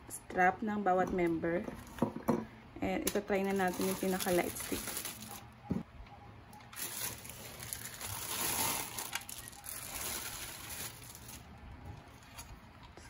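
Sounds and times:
plastic bag crinkling: 0:03.3 - 0:05.5, 0:06.7 - 0:12.6.

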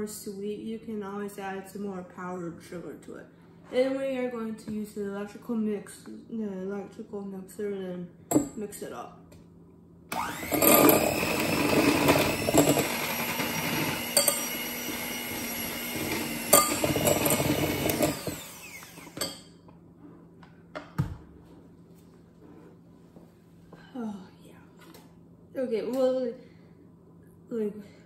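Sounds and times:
electric hand mixer whining: 0:10.1 - 0:19.4.

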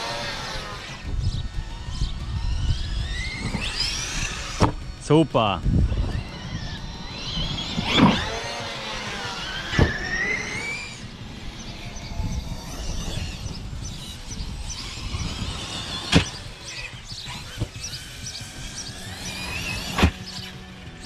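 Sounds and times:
electric toy truck motor whining: 0:00.0 - 0:21.0
sharp thumps: 0:00.4 - 0:05.0, 0:05.6 - 0:20.7
background music: 0:16.2 - 0:21.0.

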